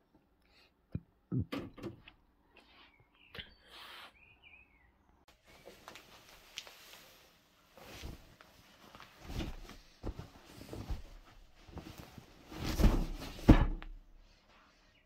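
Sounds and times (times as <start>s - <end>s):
sheet rustling and flapping: 5.7s - 14.4s.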